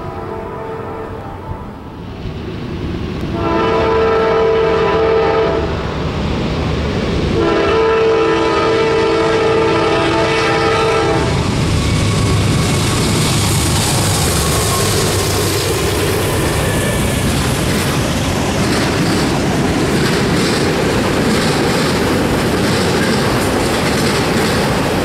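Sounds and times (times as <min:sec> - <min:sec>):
locomotive air horn blasts: 0:00.0 - 0:01.8, 0:03.3 - 0:05.8, 0:07.4 - 0:11.4
locomotive rumble: 0:00.0 - 0:25.0.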